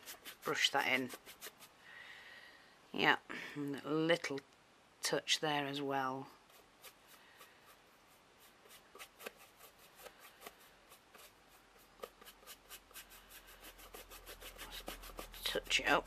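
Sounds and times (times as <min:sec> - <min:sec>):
paintbrush scratching on surface: 0:00.0 - 0:01.8, 0:06.3 - 0:16.0.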